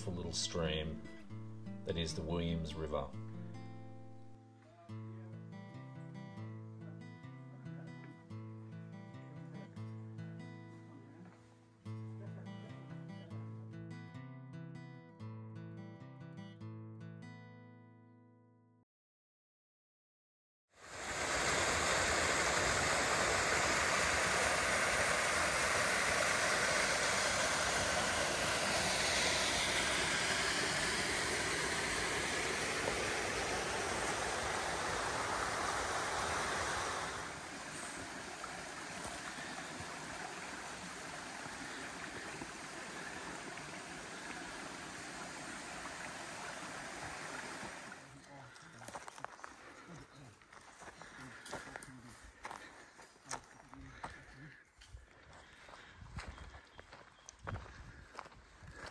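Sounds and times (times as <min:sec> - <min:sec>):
stream rushing over rocks: 0:20.8 - 0:48.1.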